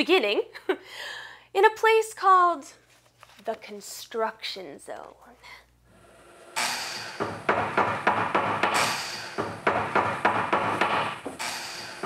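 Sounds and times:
knocks and bangs: 6.6 - 12.0.

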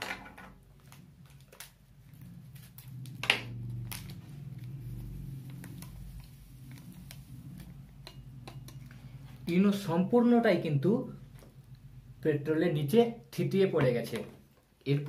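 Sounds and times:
steady low hum: 0.5 - 14.8.

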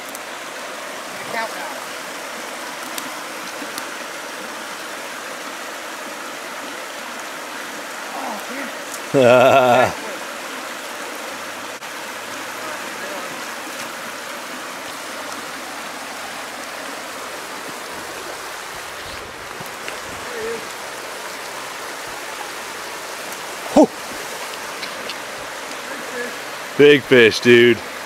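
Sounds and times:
water rushing over rocks: 0.0 - 28.0
man shouting: 9.2 - 10.0, 23.7 - 23.9.

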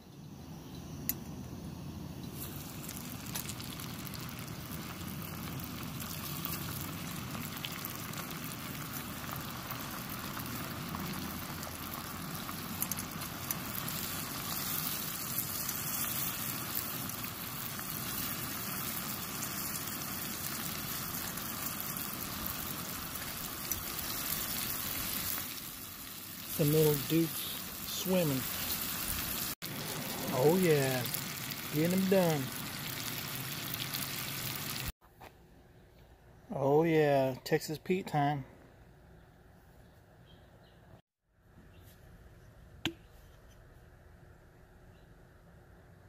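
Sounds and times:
oysters sizzling in hot oil: 2.3 - 35.0.

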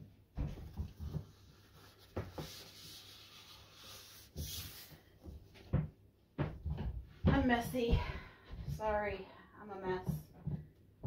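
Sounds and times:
paper towel wiping wooden table: 0.7 - 5.4.

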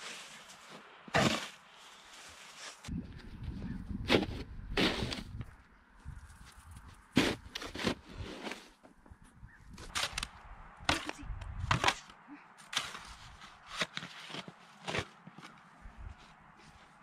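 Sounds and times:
snow shovels crunching and scraping: 0.0 - 2.9, 4.0 - 5.4, 6.4 - 9.0, 9.8 - 10.3, 10.9 - 17.0.

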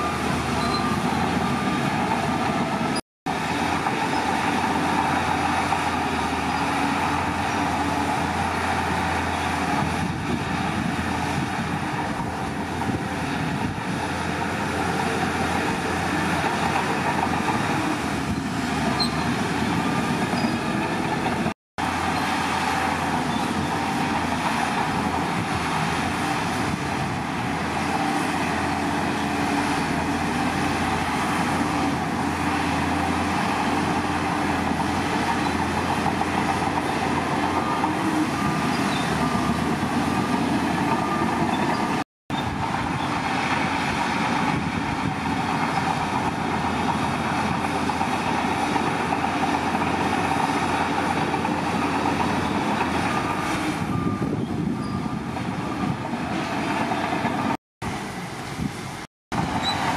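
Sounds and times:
diesel earthmoving machinery running: 0.0 - 59.9.

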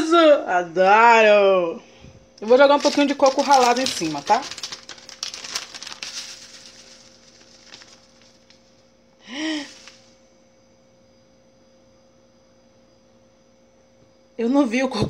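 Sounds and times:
faint steady hum: 0.0 - 15.0
packet crinkling and rustling: 2.4 - 8.9, 9.6 - 10.2.

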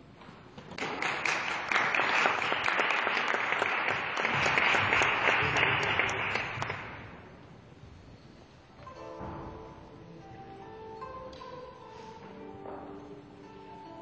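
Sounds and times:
small audience applauding: 0.6 - 7.3.

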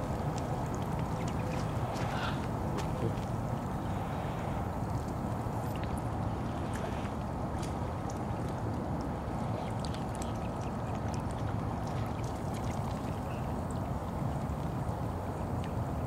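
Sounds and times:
ducks dabbling and splashing: 0.0 - 16.0.

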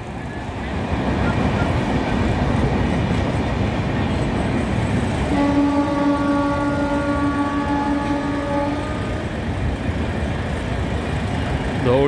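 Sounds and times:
train rumbling past: 0.0 - 12.0
locomotive horn blast: 5.3 - 9.3.

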